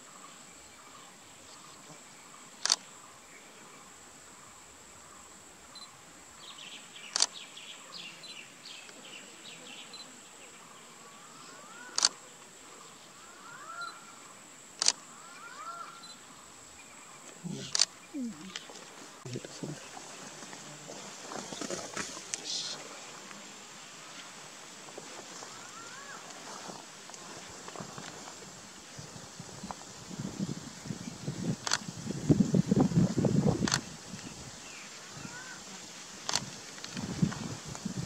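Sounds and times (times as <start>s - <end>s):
insect hiss: 0.0s - 38.0s
sharp clicks: 14.8s - 15.0s.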